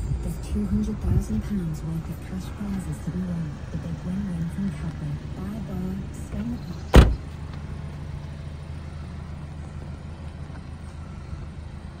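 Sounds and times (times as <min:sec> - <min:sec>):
car engine idling: 0:00.0 - 0:12.0
car door shutting: 0:06.3 - 0:07.5.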